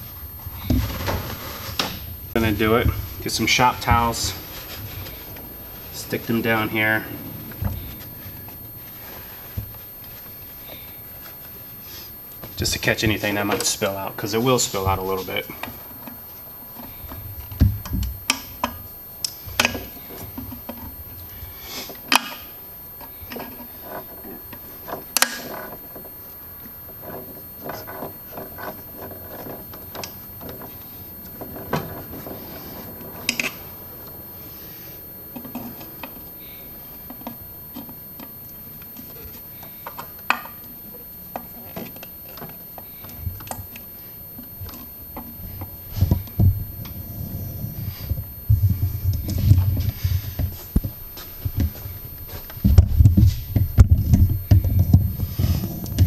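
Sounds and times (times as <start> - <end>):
dull thumps: 0.0 - 11.8, 16.9 - 18.7, 44.4 - 56.0.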